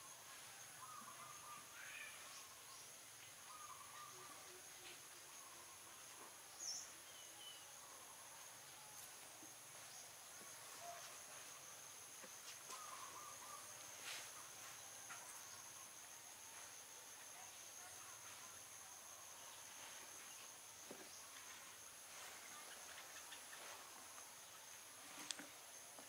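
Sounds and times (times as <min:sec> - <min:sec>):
insect chorus drone: 0:00.0 - 0:26.0
soft bird chirps: 0:12.7 - 0:15.8.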